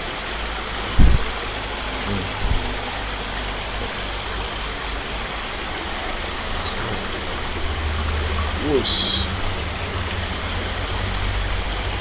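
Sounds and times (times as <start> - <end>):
stream water running: 0.0 - 12.0
dull low thump: 0.8 - 1.5, 2.3 - 2.8
soft knocks: 0.9 - 1.3.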